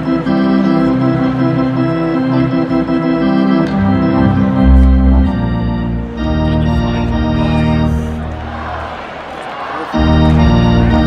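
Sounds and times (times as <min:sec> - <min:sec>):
organ chords: 0:00.0 - 0:11.0
deep organ bass note: 0:00.1 - 0:08.7, 0:10.0 - 0:11.0.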